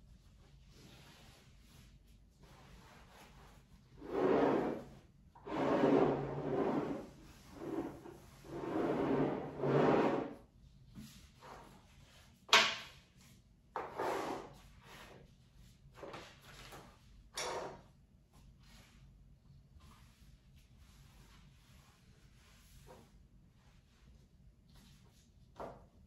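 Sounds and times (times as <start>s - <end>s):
cloth wiping wooden table: 1.0s - 10.4s.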